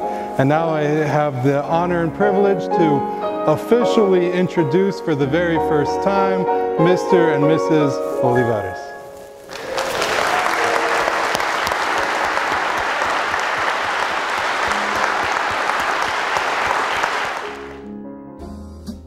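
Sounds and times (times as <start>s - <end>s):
guests applauding: 9.5s - 17.9s.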